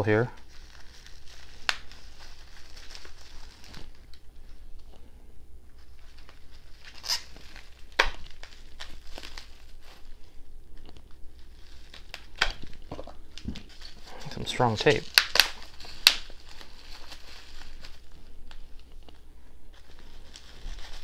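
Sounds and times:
bubble wrap crinkling: 0.0 - 21.0
tape tearing: 0.4 - 4.2, 5.9 - 10.1, 10.8 - 18.6.

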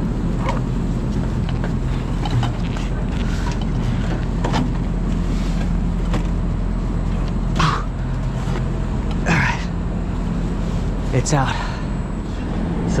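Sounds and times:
low mechanical hum: 0.0 - 13.0
compressor scraping and knocking: 0.4 - 9.2.

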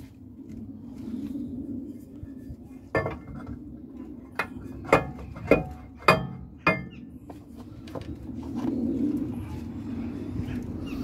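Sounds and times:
ringing metallic knocks: 4.4 - 7.0.

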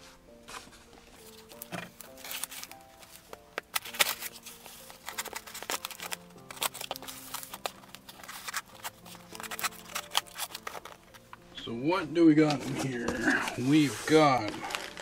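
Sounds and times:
quiet background music: 0.0 - 15.0
knife cutting packing tape: 3.6 - 11.0.

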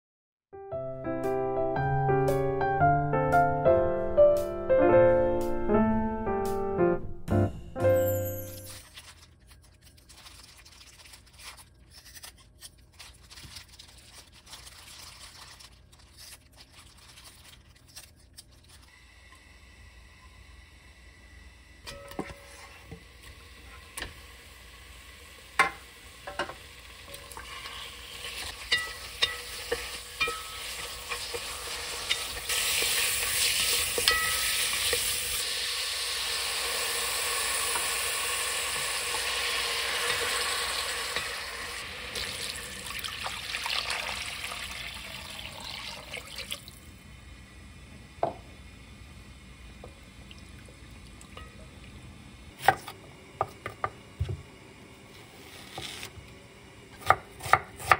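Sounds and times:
fish sizzling in oil: 23.2 - 45.4
spatula clicking and scraping pot: 27.1 - 35.1.

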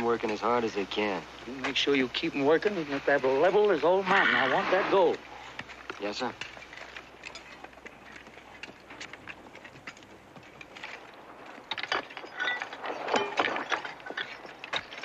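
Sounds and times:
picks and shovels striking rock: 11.6 - 15.0.

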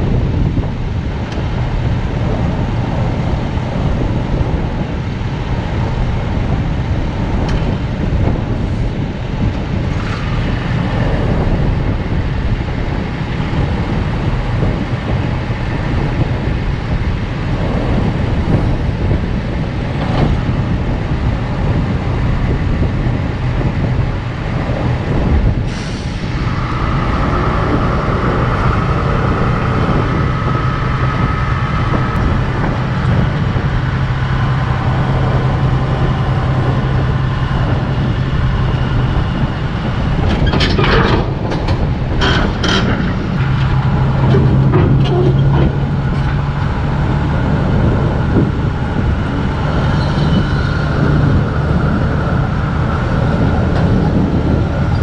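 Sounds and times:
heavy engine running: 0.0 - 55.0
steady high whine: 0.0 - 55.0
short clanks: 40.2 - 46.4.

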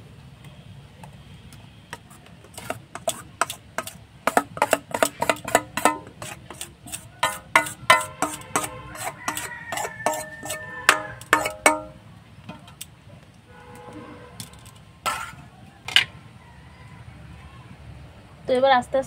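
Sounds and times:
steel bowl clinking on plate: 2.0 - 12.0, 15.1 - 15.4
sharp knocks: 7.2 - 12.0.

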